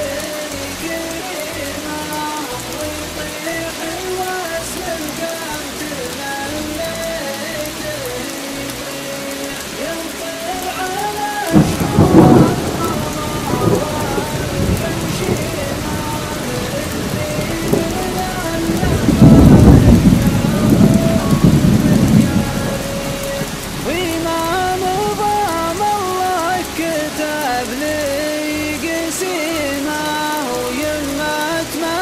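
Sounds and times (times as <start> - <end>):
steady rain: 0.0 - 32.0
rolling thunder: 11.5 - 26.7.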